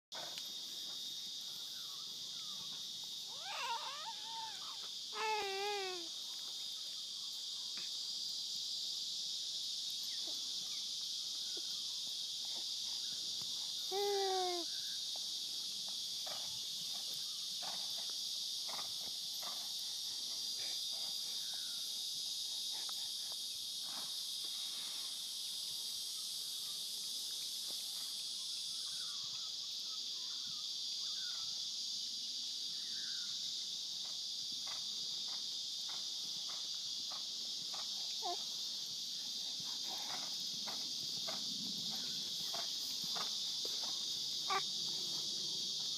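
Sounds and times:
high-pitched insect chorus: 0.2 - 45.9
faint chirps: 1.4 - 7.9.

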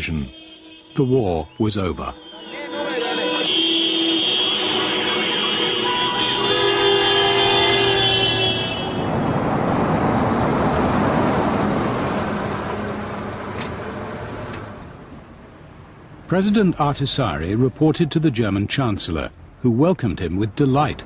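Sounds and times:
car horns honking: 0.0 - 9.3.

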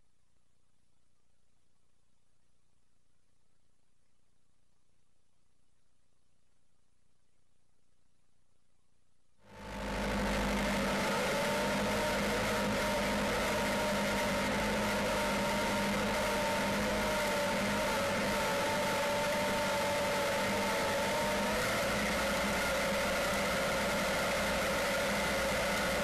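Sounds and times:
constant mechanical whine: 9.5 - 26.0
tractor engine running: 9.6 - 26.0.

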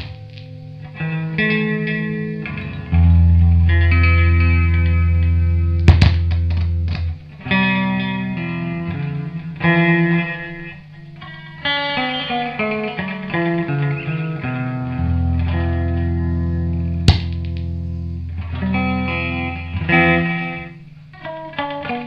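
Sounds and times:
electric guitar with tape echo: 0.0 - 22.0
loud pop with echoing clicks: 5.8 - 7.1, 17.0 - 17.7.

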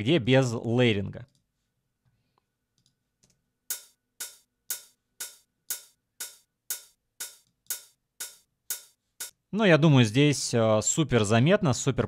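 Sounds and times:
drum machine hi-hat loop: 3.7 - 9.4.

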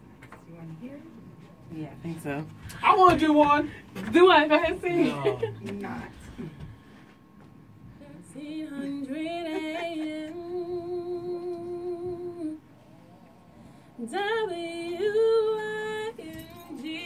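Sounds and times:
woman humming a jingle: 16.2 - 17.0.

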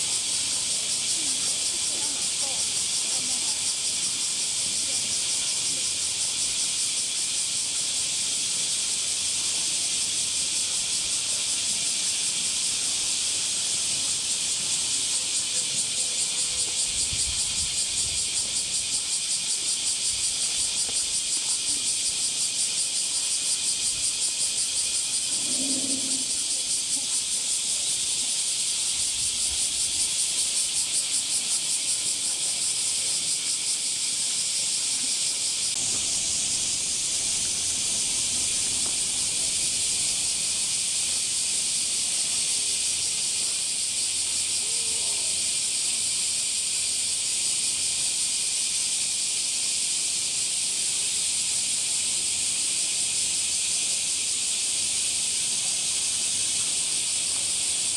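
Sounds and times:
cicadas buzzing: 0.0 - 57.9.

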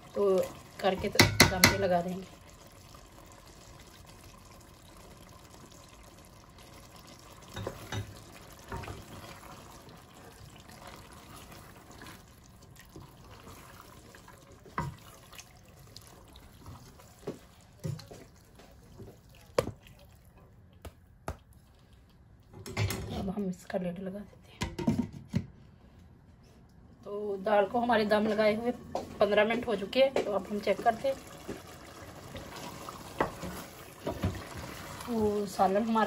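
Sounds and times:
spoon knocking against pot: 1.0 - 1.9
wet stirring: 7.5 - 22.6.

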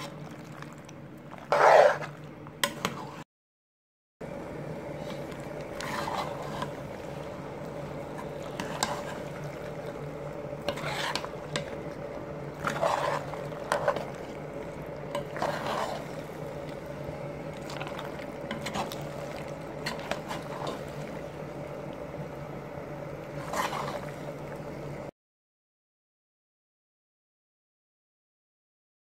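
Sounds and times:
spoon stirring pasta in sauce: 0.0 - 3.2, 5.0 - 22.1, 23.1 - 24.6
spoon scraping pan: 1.4 - 3.2, 5.0 - 21.1, 23.3 - 24.4
steady hum: 4.2 - 25.1.

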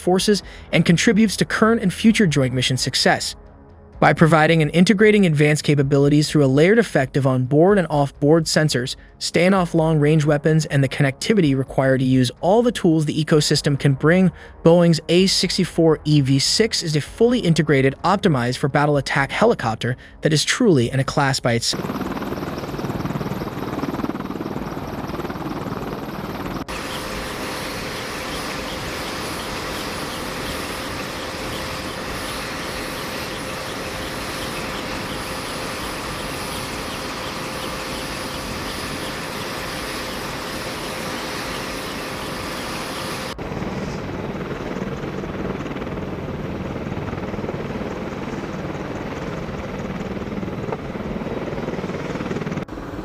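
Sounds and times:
helicopter rotor and engine noise: 20.8 - 53.0
high steady whine: 21.7 - 44.4.

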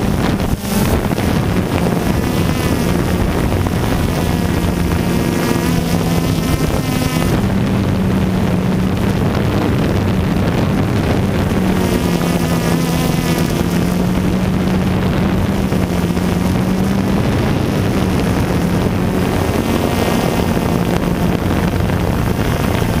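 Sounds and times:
drone propellers buzzing: 0.0 - 23.0
wind noise on microphone: 0.0 - 23.0.

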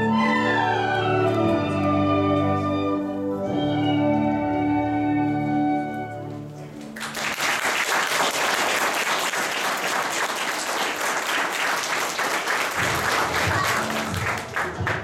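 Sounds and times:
audience applause: 6.8 - 15.0.

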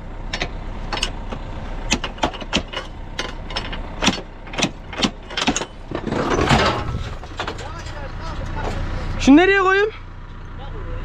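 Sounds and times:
tractor engine idling: 0.0 - 11.0
latch chain rattling: 1.9 - 8.9.

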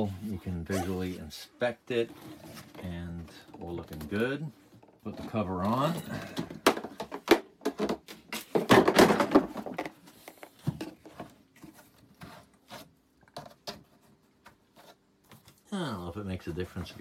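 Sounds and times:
hard plastic knocking and scraping: 2.1 - 15.6.

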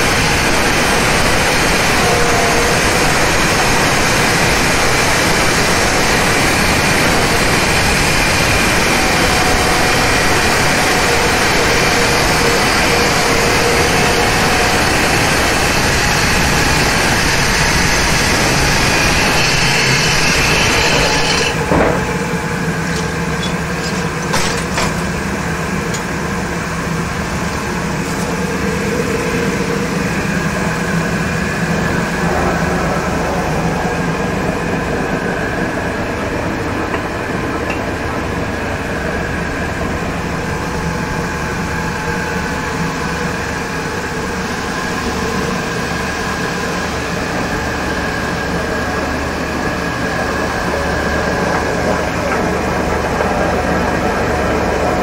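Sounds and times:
saw machine cutting marble: 0.0 - 33.4.

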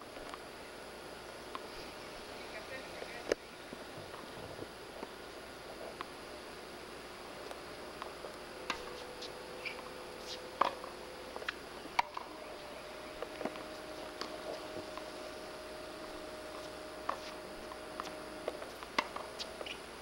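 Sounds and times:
tape hiss: 0.0 - 20.0
tennis ball bounces: 7.5 - 12.4, 13.1 - 15.1, 16.0 - 19.8
tennis racket strikes: 8.7 - 12.3, 16.5 - 19.8.

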